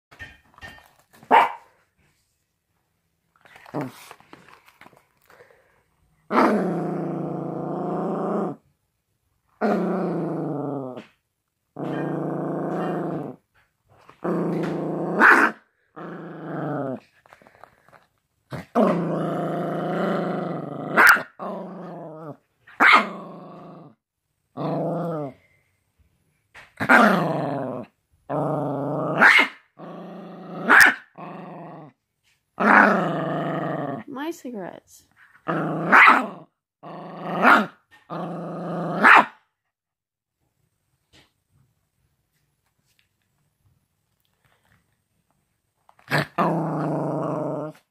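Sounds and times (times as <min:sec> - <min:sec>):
puppy barking: 0:01.2 - 0:01.8, 0:21.0 - 0:21.3, 0:22.8 - 0:23.1, 0:29.2 - 0:29.6, 0:30.7 - 0:31.1, 0:39.0 - 0:39.4
puppy growling: 0:06.3 - 0:08.7, 0:09.6 - 0:13.5, 0:14.1 - 0:25.6, 0:26.8 - 0:32.0, 0:32.6 - 0:34.1, 0:35.4 - 0:39.2, 0:46.0 - 0:47.9.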